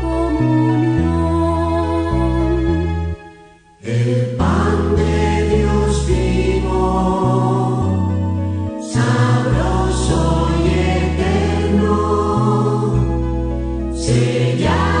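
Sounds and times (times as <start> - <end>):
choir singing a hymn: 3.8 - 8.1, 8.8 - 13.2, 13.9 - 15.0.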